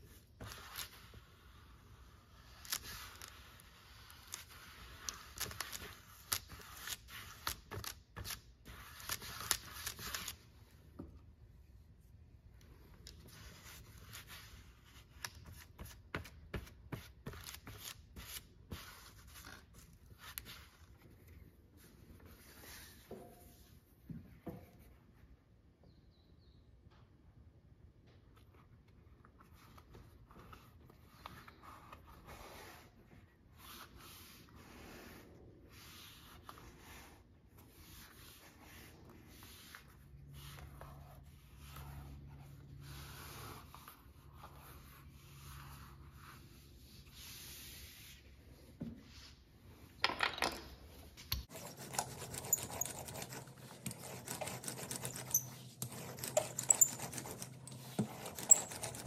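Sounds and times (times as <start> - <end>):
hand roller crackling on leather: 51.4 - 59.0
hands rubbing leather: 51.4 - 59.0.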